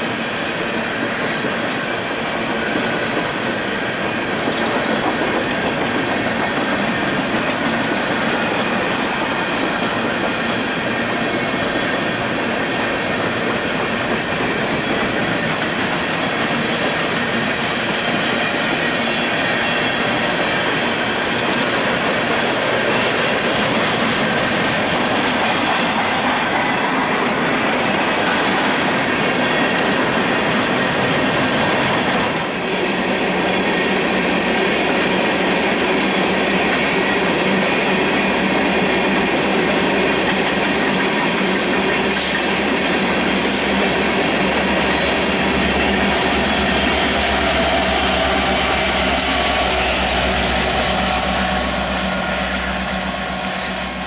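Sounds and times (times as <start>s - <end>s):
train wheels clicking on rails: 0.0s - 54.0s
low diesel locomotive rumble: 41.5s - 54.0s
high wheel squeal: 44.8s - 54.0s.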